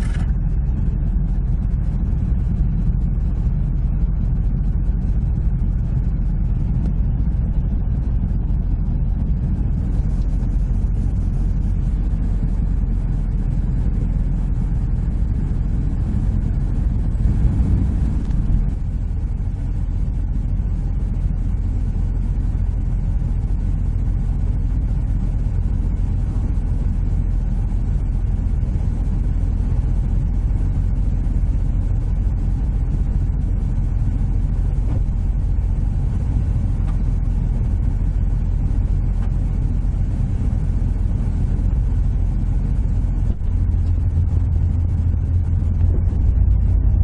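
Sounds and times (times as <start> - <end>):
car engine drone: 0.0 - 47.0
road noise inside car: 0.0 - 47.0.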